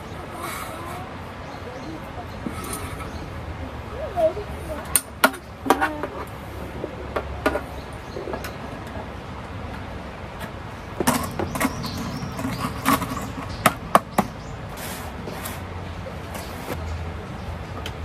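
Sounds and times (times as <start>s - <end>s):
hard objects clicking and knocking: 9.8s - 14.4s.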